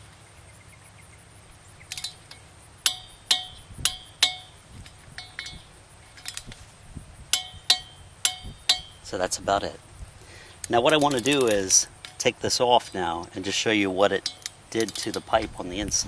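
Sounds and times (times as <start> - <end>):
torque wrench clicking: 1.8 - 6.6, 7.3 - 9.1, 10.6 - 12.3, 14.1 - 16.0.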